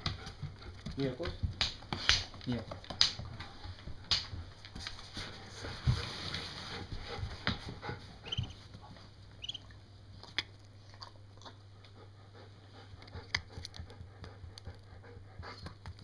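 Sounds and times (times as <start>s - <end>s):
duckling high peeps: 8.2s - 8.6s, 9.4s - 9.7s.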